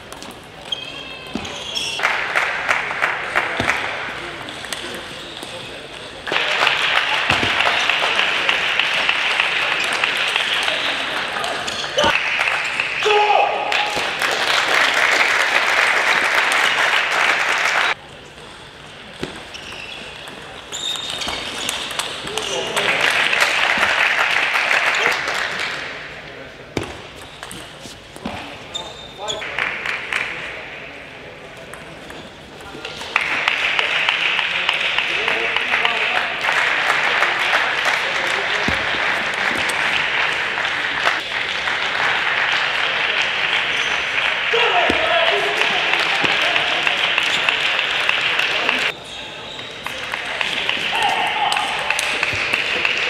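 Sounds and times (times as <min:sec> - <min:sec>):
spectators applauding: 0:02.0 - 0:04.0, 0:06.3 - 0:18.0, 0:22.5 - 0:25.9, 0:33.1 - 0:48.9, 0:49.9 - 0:53.0.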